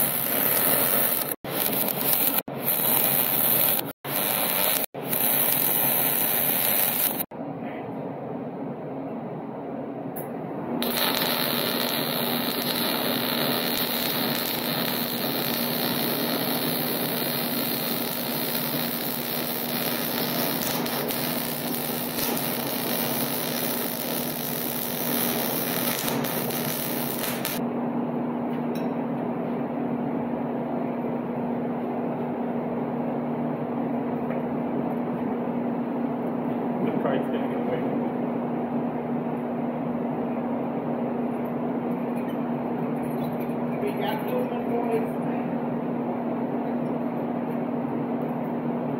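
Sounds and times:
welding arc crackling hiss: 0.0 - 7.3, 10.8 - 27.6.

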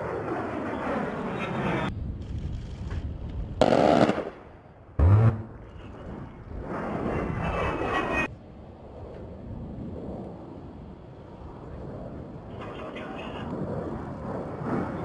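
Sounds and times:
jet engines whining in flyby: 0.0 - 1.9, 5.0 - 15.0
aircraft cannon firing bursts: 3.6 - 4.4.

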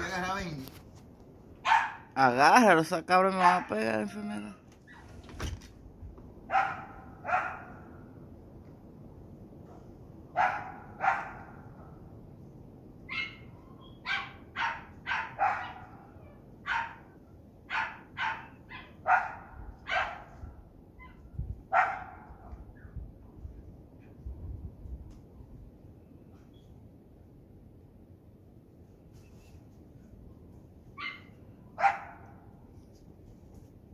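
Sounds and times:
small dog barking: 1.6 - 2.1, 6.5 - 7.9, 10.4 - 11.7, 13.1 - 17.1, 17.7 - 20.4, 21.0 - 22.6, 31.0 - 32.4.

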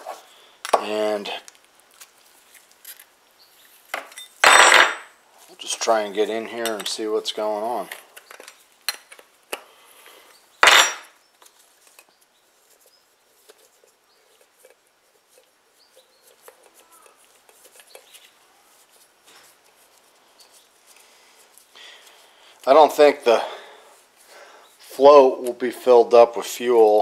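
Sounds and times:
hand tools clinking on metal: 4.0 - 5.0, 6.1 - 7.0, 10.6 - 11.2.

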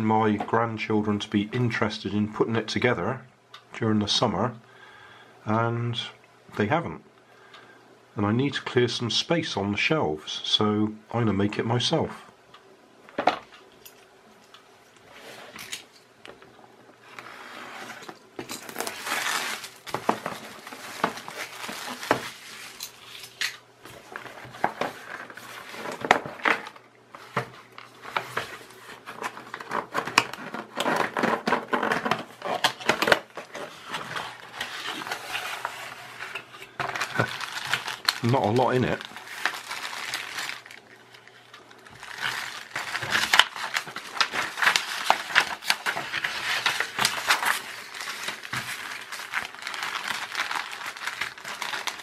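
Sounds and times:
plastic bags crinkling: 17.9 - 52.0.

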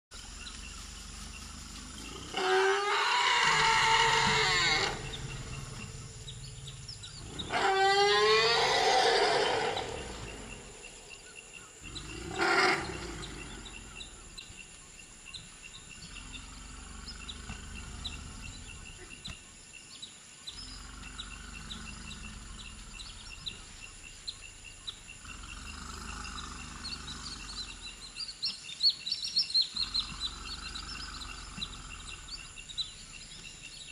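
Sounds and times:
elephants calling: 0.4 - 11.1, 11.8 - 14.2.

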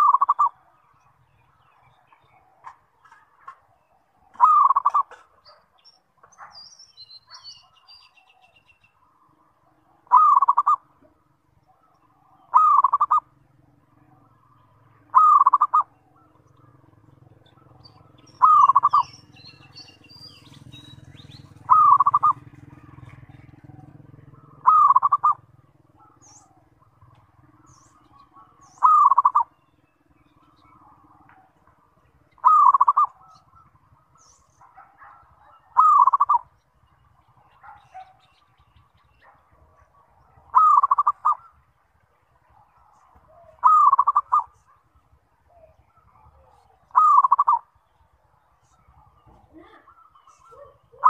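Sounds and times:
dove rolling coo: 0.0 - 0.6, 4.3 - 5.6, 10.0 - 10.8, 12.1 - 13.3, 15.1 - 17.0, 17.6 - 29.6, 32.4 - 36.5, 39.2 - 41.6, 43.1 - 44.6, 45.5 - 47.6
small birds chirping: 0.0 - 51.0.

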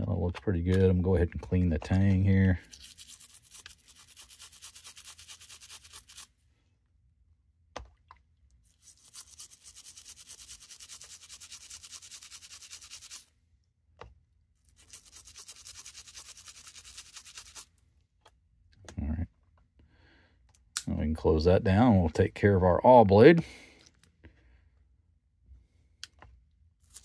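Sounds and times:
toothbrush scrubbing a knife: 2.5 - 6.3, 8.7 - 13.3, 14.7 - 17.7.

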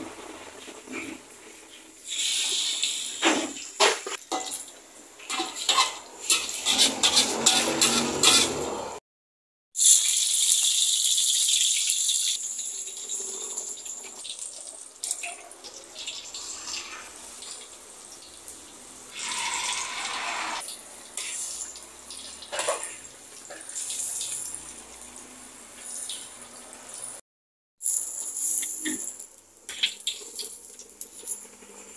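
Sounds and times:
hot oil sizzling: 0.0 - 9.0, 9.8 - 27.2, 27.8 - 31.9.

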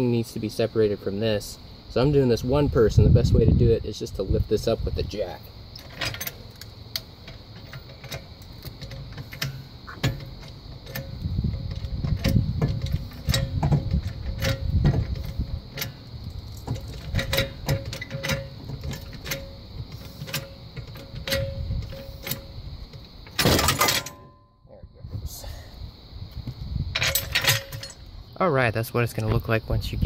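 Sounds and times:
floor jack clicks and knocks: 7.3 - 16.0.

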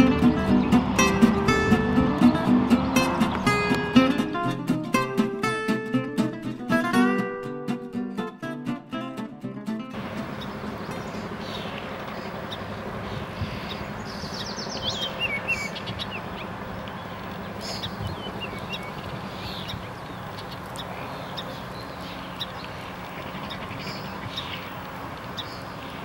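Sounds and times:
songbirds chirping: 0.0 - 4.1, 10.0 - 26.0
outdoor background rush: 0.0 - 26.0.

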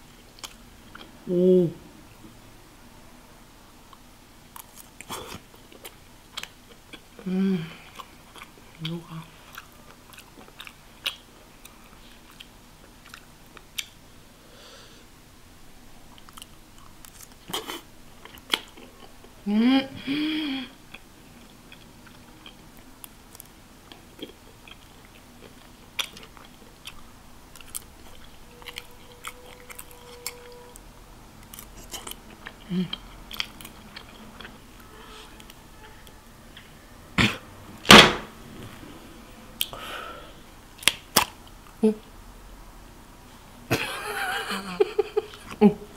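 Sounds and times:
person humming: 1.2 - 1.9, 7.2 - 7.9, 19.4 - 20.8, 32.6 - 33.0
chewing and biting: 7.8 - 14.0, 20.9 - 30.8, 31.4 - 34.6.

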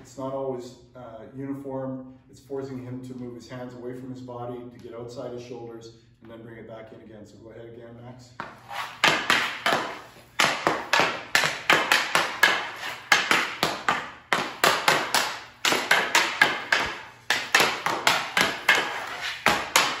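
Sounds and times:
hockey stick clacking on puck: 8.4 - 20.0.

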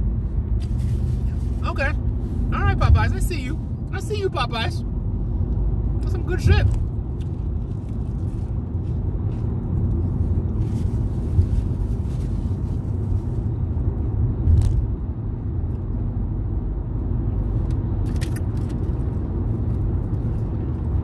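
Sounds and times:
car rumble from inside cabin: 0.0 - 21.0
sandwich being bitten and chewed: 6.9 - 12.4.

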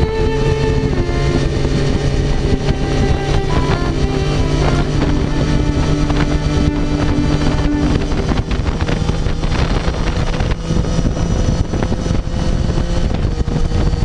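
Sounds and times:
motorcycle engine running: 0.0 - 14.0
wind buffeting microphone: 0.0 - 14.0.

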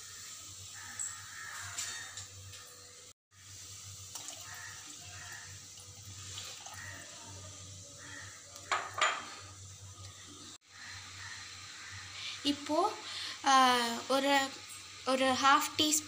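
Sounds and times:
water pouring into metal pan: 3.6 - 7.7.

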